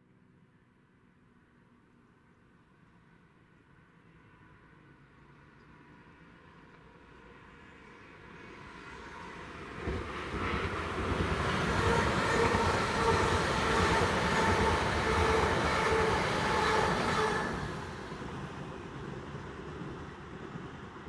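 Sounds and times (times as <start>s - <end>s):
train wheels rushing on rail: 7.6s - 21.0s.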